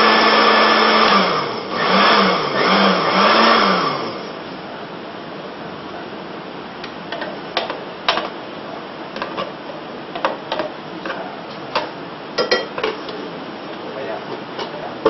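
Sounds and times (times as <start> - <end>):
steady background hiss: 3.8 - 15.0.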